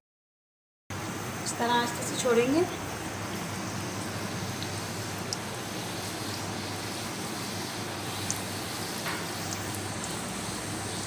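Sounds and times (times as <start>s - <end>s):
dough sizzling in hot oil: 1.0s - 11.0s
oil popping: 3.2s - 11.0s.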